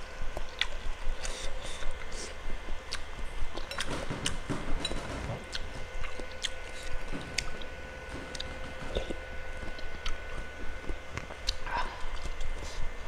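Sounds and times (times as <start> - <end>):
person chewing: 0.4 - 2.3, 5.5 - 12.8
wet mouth clicks and smacks: 0.5 - 1.4.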